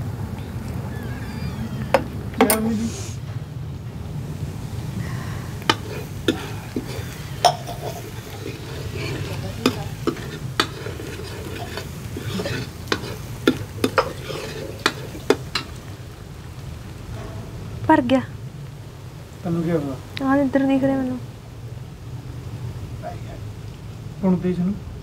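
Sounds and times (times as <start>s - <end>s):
frying sizzle: 0.0s - 25.0s
metal ladle clinking on pan: 5.6s - 15.9s.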